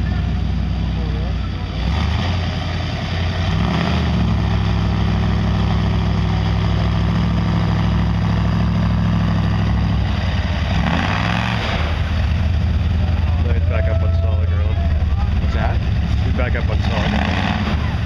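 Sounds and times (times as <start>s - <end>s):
mini excavator engine: 0.0s - 18.0s
truck engine revving: 0.0s - 18.0s.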